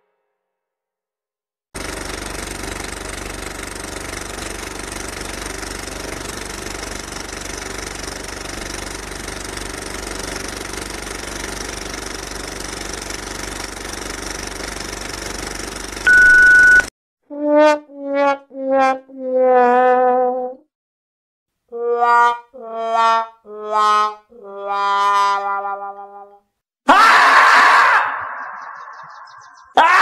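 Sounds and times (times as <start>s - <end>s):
mechanical running hum: 1.8s - 16.9s
loud single-pitched beep: 16.1s - 16.9s.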